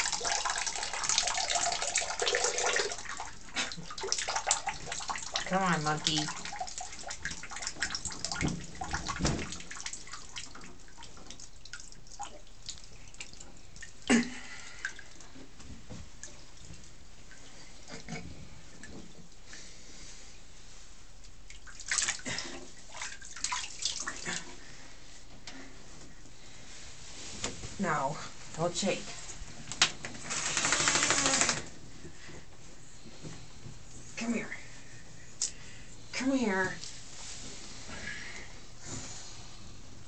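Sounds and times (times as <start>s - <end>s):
water dripping and splashing: 0.0s - 15.4s, 21.2s - 24.5s.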